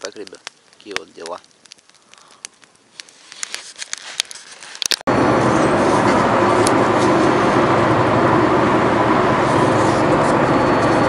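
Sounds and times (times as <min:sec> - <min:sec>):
van engine drone and road noise: 0:05.1 - 0:11.0.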